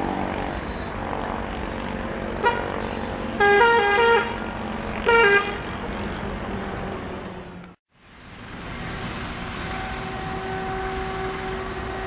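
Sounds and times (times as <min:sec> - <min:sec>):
passing train rumble: 0:00.0 - 0:12.0
train horn blasts: 0:03.4 - 0:04.4, 0:05.0 - 0:05.7, 0:09.4 - 0:12.0.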